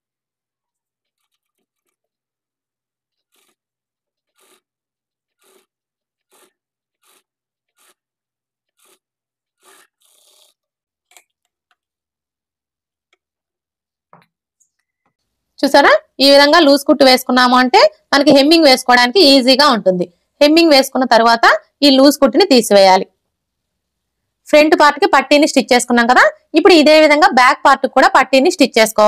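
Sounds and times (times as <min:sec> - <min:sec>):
cloth rustling: 0:00.6 - 0:12.0
thread drawn through fabric: 0:00.7 - 0:02.2, 0:03.0 - 0:11.9.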